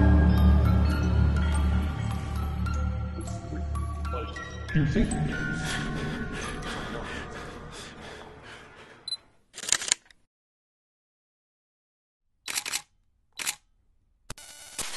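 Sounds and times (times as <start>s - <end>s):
background music: 0.0s - 8.8s
camera shutter clicks: 12.5s - 13.6s.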